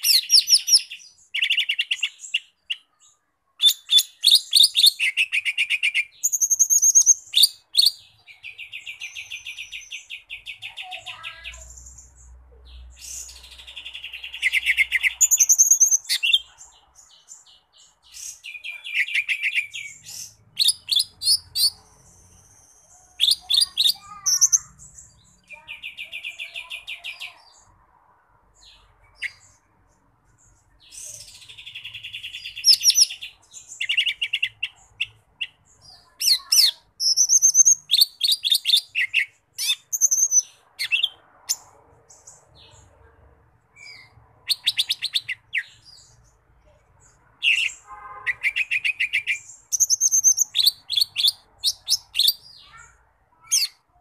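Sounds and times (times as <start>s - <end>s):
bird singing whistles and trills: 3.6s - 8.0s, 14.4s - 16.4s, 37.0s - 41.1s, 48.4s - 52.4s.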